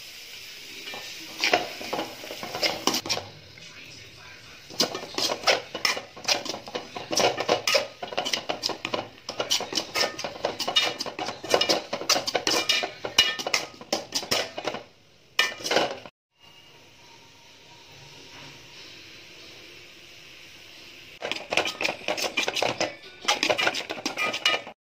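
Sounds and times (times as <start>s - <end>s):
spatula scraping metal pan: 0.8s - 3.3s, 4.6s - 16.1s, 21.2s - 24.8s.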